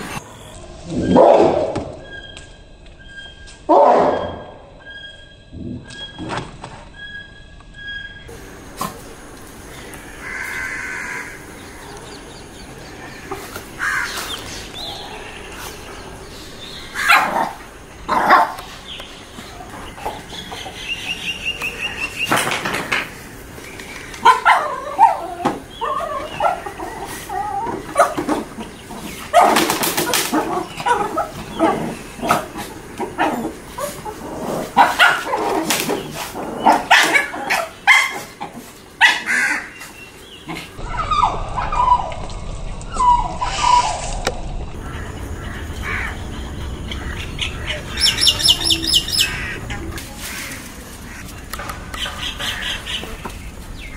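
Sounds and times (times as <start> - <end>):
puppies yipping and barking: 24.2 - 42.3.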